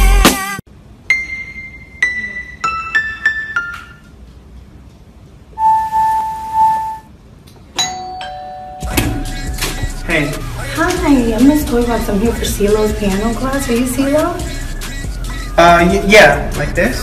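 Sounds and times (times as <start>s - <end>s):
electronic keyboard piano notes: 1.1s - 4.2s
steady high tone: 5.5s - 7.2s, 7.8s - 17.0s.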